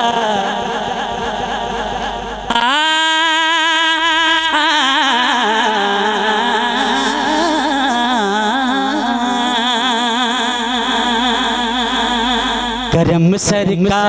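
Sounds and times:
man singing unaccompanied: 0.0s - 14.0s.

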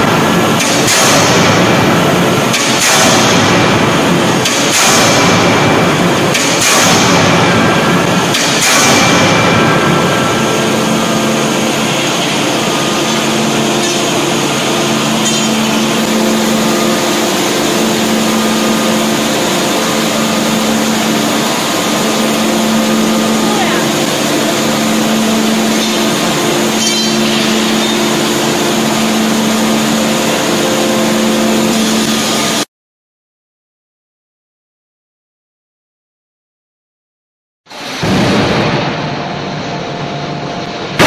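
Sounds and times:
forging hammer blows: 0.0s - 32.7s
machine hum: 0.0s - 32.7s, 37.7s - 41.0s.

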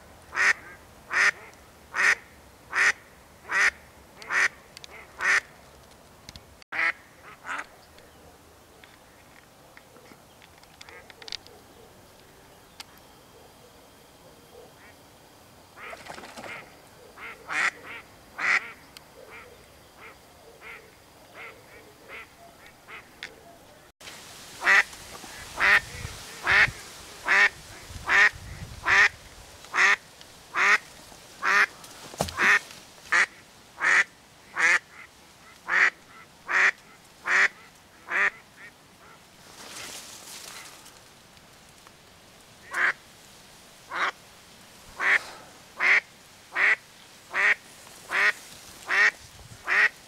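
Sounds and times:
duck quacking: 0.3s - 5.5s, 6.8s - 7.7s, 15.8s - 19.4s, 26.4s - 30.8s, 31.4s - 31.7s, 32.3s - 39.2s, 43.9s - 44.2s, 45.0s - 45.2s, 45.8s - 49.9s.

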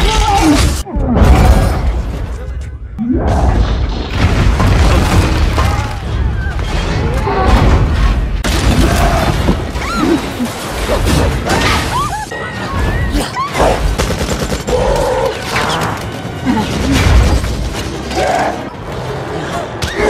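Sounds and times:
film music score: 0.0s - 20.0s
heavy booms and crashes: 3.2s - 11.5s.

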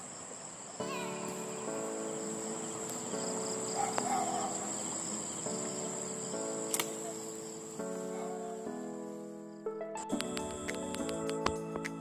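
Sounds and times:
crickets trilling: 0.0s - 9.6s.

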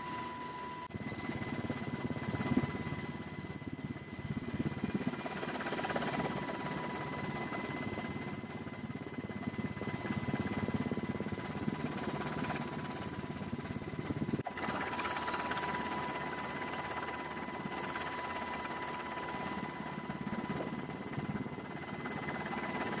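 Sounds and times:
thin high tone: 0.0s - 3.2s
aircraft engine drone: 0.0s - 23.0s.

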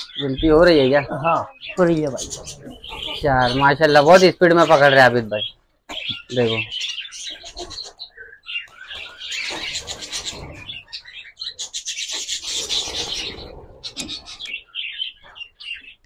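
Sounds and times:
budgerigars chattering and screeching: 0.0s - 16.0s
wings flapping and rustling: 8.6s - 10.9s, 11.8s - 14.5s.

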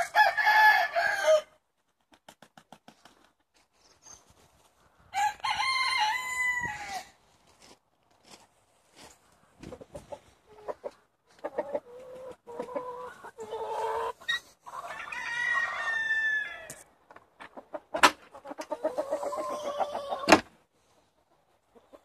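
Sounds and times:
rooster crowing: 0.0s - 1.5s, 5.1s - 7.1s, 14.8s - 16.8s
chickens clucking and cackling: 9.3s - 22.0s.

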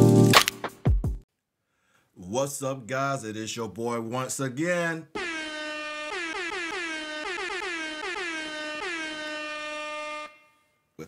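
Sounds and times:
air horn blasts: 5.2s - 11.0s.

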